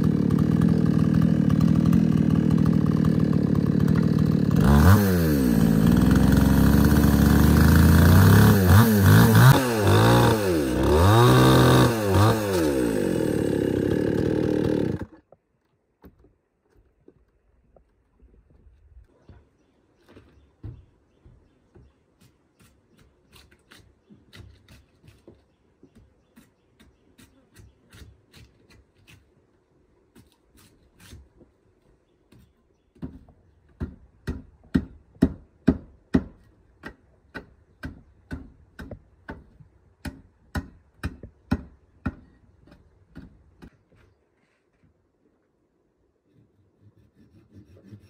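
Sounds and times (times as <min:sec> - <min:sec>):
wood knocking: 0:20.1 - 0:21.9
machete chopping wood: 0:40.0 - 0:43.7.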